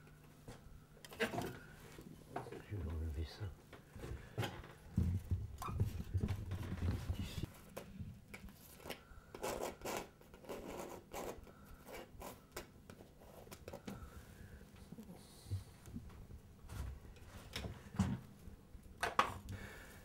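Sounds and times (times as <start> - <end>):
scratching and rubbing: 8.6 - 12.5.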